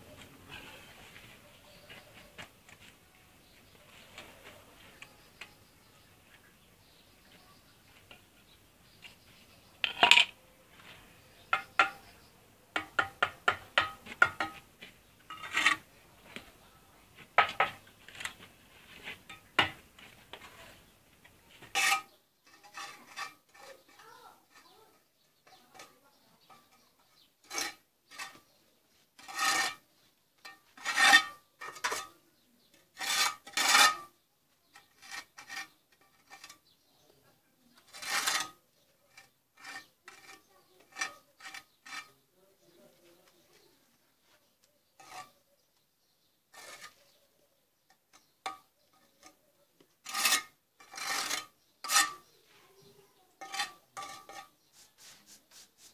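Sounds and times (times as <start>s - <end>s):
trowel tapping on brick: 11.5s - 12.1s, 12.8s - 14.7s
trowel scraping brick: 12.8s - 15.9s, 21.6s - 28.6s, 29.2s - 36.8s, 37.8s - 42.3s, 45.0s - 45.4s, 46.5s - 47.2s, 48.1s - 52.4s, 53.3s - 55.9s.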